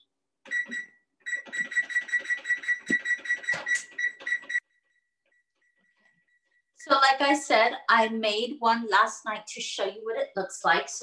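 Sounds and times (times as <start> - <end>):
digital timer beeping: 0.5 - 4.6.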